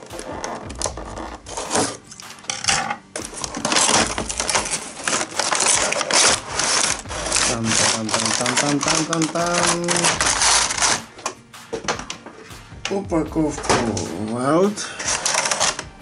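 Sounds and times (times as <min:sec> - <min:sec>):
cardboard scraping and sliding: 0:00.0 - 0:11.4
plastic parts clicking and rattling: 0:00.0 - 0:15.9.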